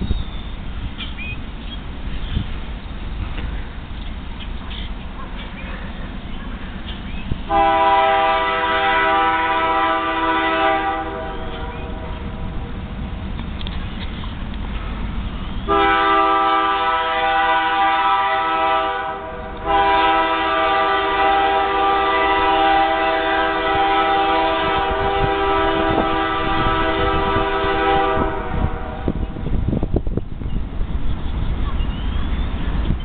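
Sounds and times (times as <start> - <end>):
distant locomotive air horn: 7.5 - 12.5, 15.7 - 29.4.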